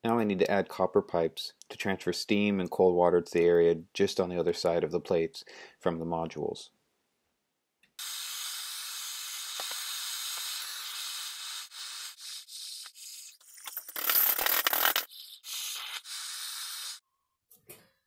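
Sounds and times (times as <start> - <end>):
gas torch hissing: 8.0 - 13.4, 15.5 - 17.0.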